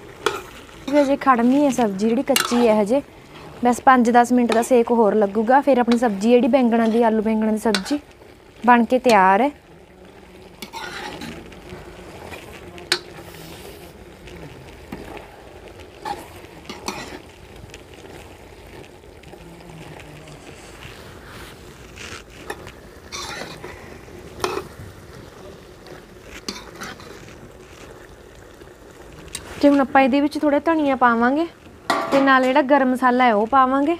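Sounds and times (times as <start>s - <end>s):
curry sizzling: 0.0s - 33.9s
metal ladle scraping pan: 0.2s - 4.9s, 5.7s - 8.2s, 10.4s - 14.0s, 16.0s - 17.3s, 21.0s - 24.8s, 25.8s - 27.9s.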